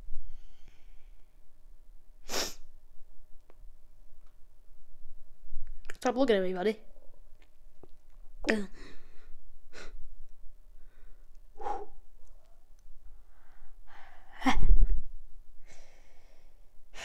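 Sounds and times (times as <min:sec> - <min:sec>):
person gasping: 0:10.8 - 0:12.0.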